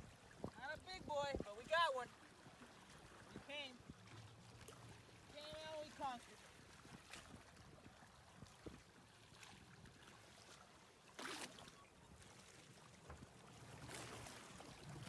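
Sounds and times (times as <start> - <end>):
water sloshing against boat: 0.0 - 15.0.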